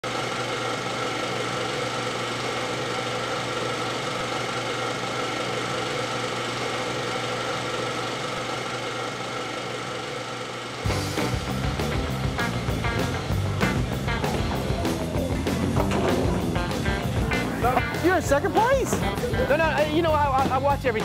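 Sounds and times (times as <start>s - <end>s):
film projector whirring: 0.0s - 21.0s.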